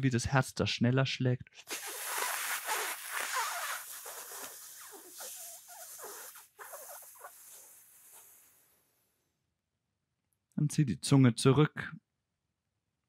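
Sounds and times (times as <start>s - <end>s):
slow airy inhale: 1.7s - 9.0s.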